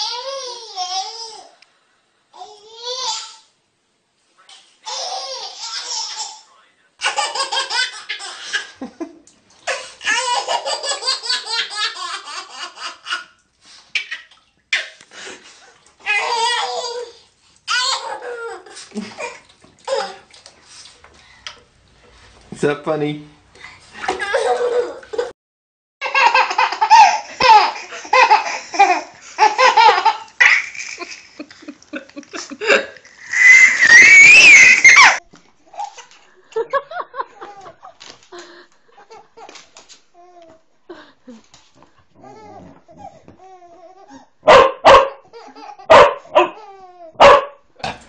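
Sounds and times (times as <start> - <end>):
baby laughing: 4.8 - 8.8, 9.7 - 15.0, 16.0 - 20.3, 24.0 - 25.3, 26.0 - 36.2.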